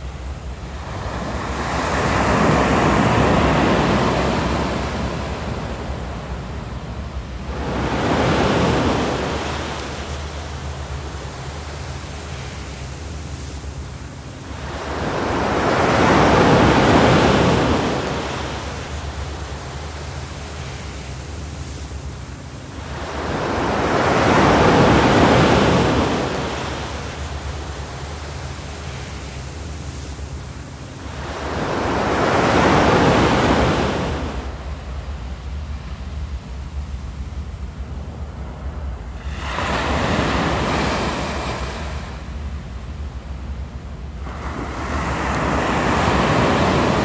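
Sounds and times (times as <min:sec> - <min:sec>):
steady low rumble: 0:00.0 - 0:47.0
surf breaking on sand beach: 0:00.6 - 0:06.6, 0:07.4 - 0:10.2, 0:14.5 - 0:19.7, 0:22.8 - 0:27.2, 0:38.5 - 0:42.3, 0:44.2 - 0:47.0.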